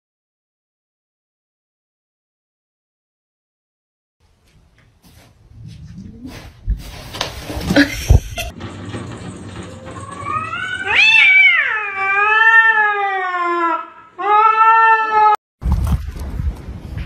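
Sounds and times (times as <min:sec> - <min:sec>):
cat yowling: 0:10.0 - 0:15.4.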